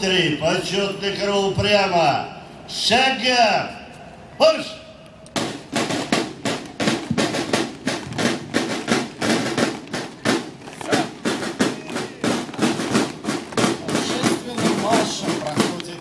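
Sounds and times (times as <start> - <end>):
boots marching on stone: 5.4 - 16.0.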